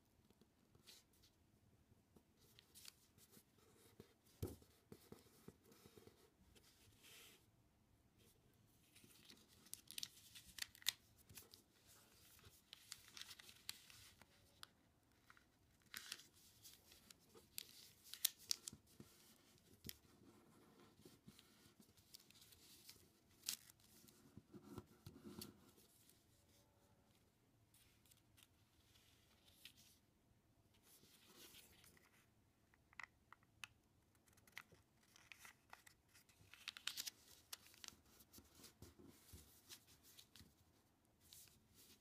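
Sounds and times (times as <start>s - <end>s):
paper being folded and creased: 8.8s - 26.2s, 30.8s - 32.2s, 34.2s - 40.6s, 41.3s - 42.0s.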